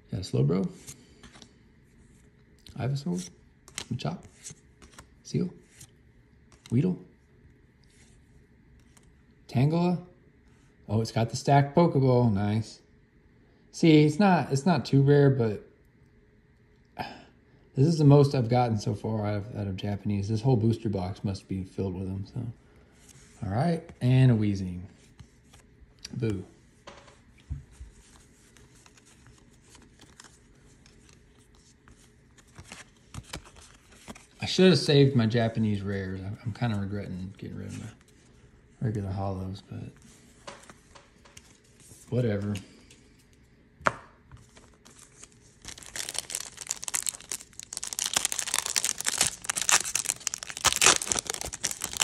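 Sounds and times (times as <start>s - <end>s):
cards rustling and tapping: 26.3s - 34.3s, 42.4s - 52.0s
foil wrapper crinkling: 44.5s - 52.0s.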